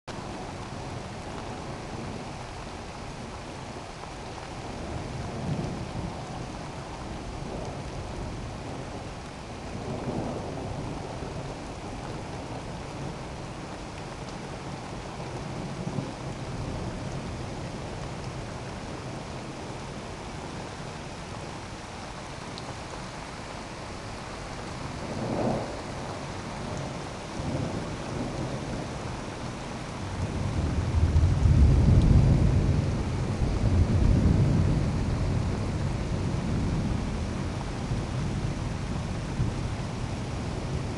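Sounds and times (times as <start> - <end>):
steady rain falling: 0.1 - 40.9
thunder rolling: 24.8 - 40.9.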